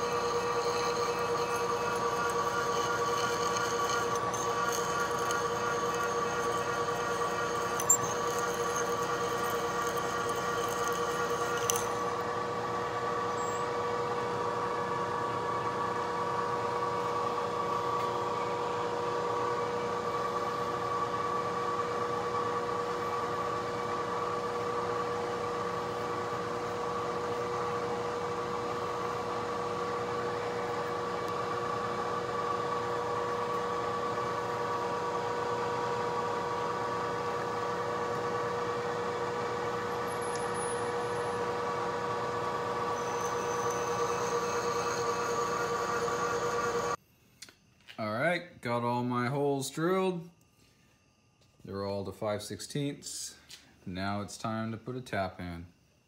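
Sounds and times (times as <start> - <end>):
drill boring through steel: 0.0 - 12.3, 35.4 - 47.0
milling spindle whine: 0.0 - 47.0.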